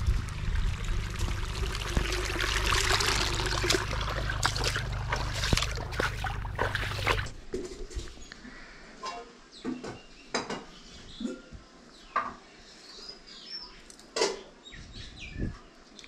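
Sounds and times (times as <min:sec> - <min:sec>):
water running down channel: 0:00.0 - 0:07.4.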